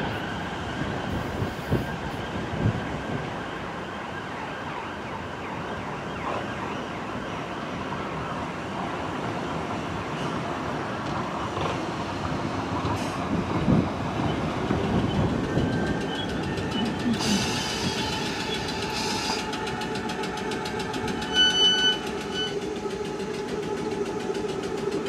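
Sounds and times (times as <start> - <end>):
siren-like wail: 0.0 - 8.6, 15.0 - 25.0
train wheels rumbling: 8.6 - 25.0.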